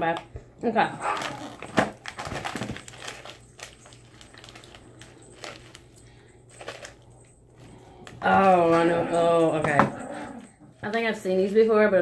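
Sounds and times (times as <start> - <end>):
snack wrapper crinkling: 1.0 - 8.6.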